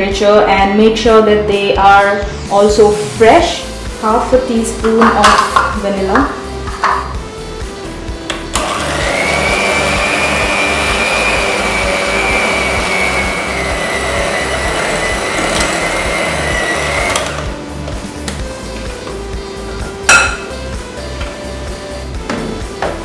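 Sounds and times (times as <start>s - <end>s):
electric hand mixer whining: 8.3s - 17.6s
mixer beating batter in glass bowl: 8.6s - 17.4s.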